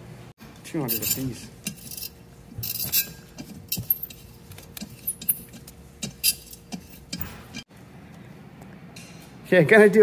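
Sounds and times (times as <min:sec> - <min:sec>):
metal tool clinking on metal: 0:00.9 - 0:04.3.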